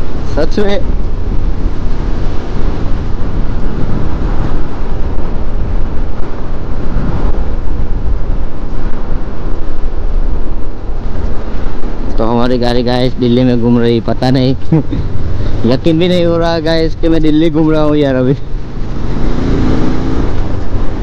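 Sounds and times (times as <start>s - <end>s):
wind rushing over microphone: 0.0s - 21.0s
motorcycle engine: 18.4s - 21.0s.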